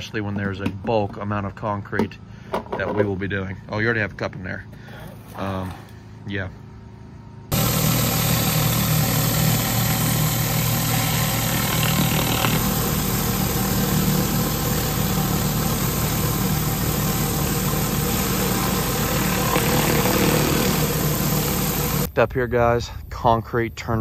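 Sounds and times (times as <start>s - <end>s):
gas engine running: 7.5s - 22.1s
pressure washer hiss: 7.5s - 22.1s.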